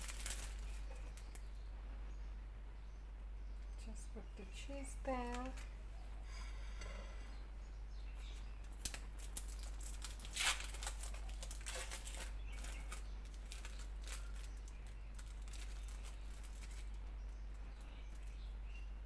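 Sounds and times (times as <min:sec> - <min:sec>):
plastic wrapper crinkling: 0:00.0 - 0:01.4, 0:08.7 - 0:17.0
steady low hum: 0:00.0 - 0:19.0.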